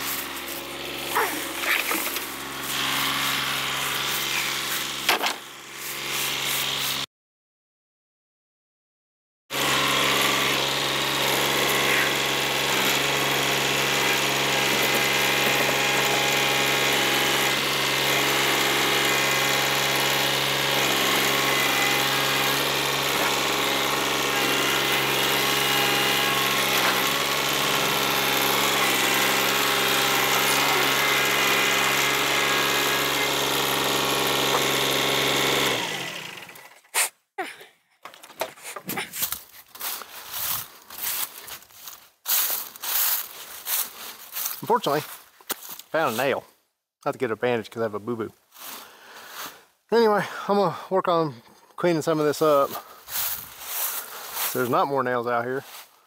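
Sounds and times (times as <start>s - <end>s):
tractor diesel engine running: 0.0s - 5.0s, 9.6s - 36.7s.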